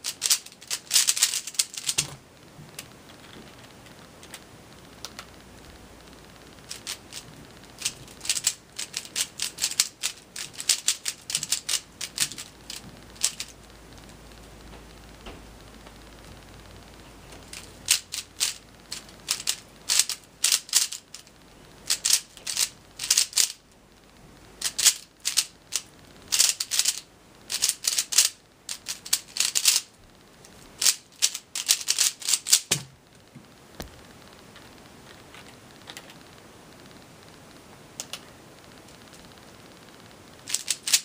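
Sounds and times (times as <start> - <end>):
puzzle cube clicking: 0.0 - 2.2, 6.4 - 14.2, 17.4 - 23.6, 24.6 - 29.9, 30.8 - 32.9, 40.5 - 41.0.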